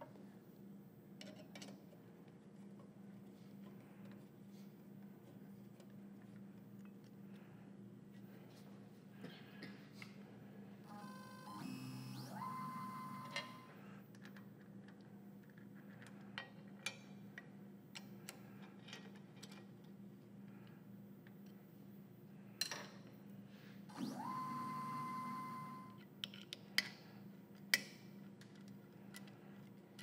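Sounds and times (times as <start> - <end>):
rotary table motor whine: 10.9 - 13.9, 23.9 - 26.0.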